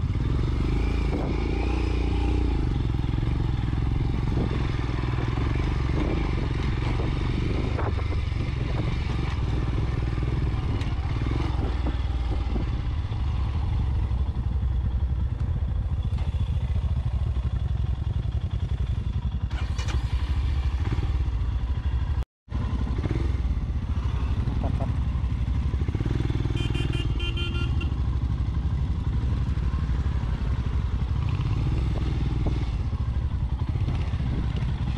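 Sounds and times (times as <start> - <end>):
motorcycle engine running: 0.0 - 34.9
motorcycle engine idling: 9.8 - 34.9.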